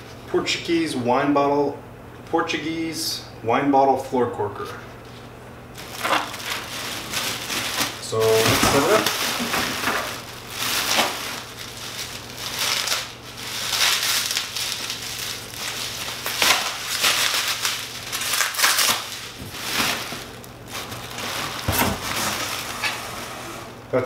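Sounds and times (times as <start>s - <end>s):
plastic wrap crinkling: 5.0s - 23.0s.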